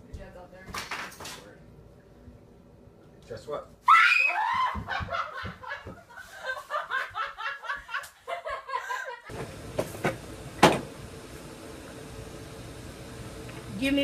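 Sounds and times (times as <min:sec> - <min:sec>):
steady background hum: 0:00.0 - 0:14.0
laughter in bursts: 0:04.6 - 0:09.3.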